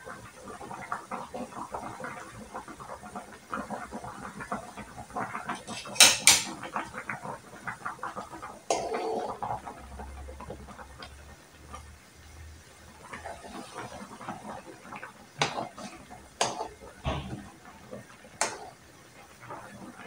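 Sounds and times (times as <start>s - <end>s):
soup bubbling: 0.1s - 20.0s
metal ladle knocking a pan: 5.6s - 6.7s, 15.4s - 15.8s, 16.4s - 17.6s.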